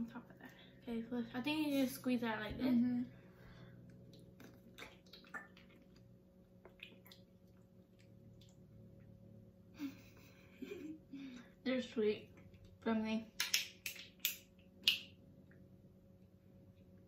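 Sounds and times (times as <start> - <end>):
wet clicks and smacks of chewing: 3.8 - 9.1, 13.4 - 15.7.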